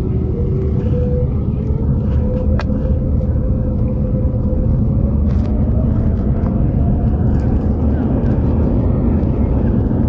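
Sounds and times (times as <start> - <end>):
jet engines rumbling in cabin: 0.0 - 10.0.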